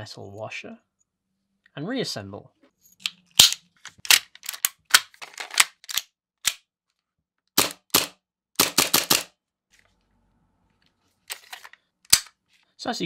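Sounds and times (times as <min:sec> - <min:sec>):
metal clicks of pistol parts: 0:03.0 - 0:06.7, 0:11.3 - 0:12.4.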